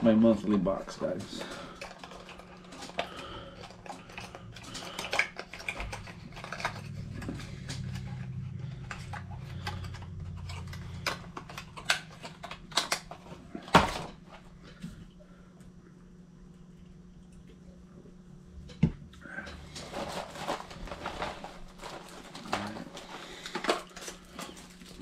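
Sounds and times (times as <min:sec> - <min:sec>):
plastic package clicking and crackling: 0:00.4 - 0:14.2, 0:19.6 - 0:25.0.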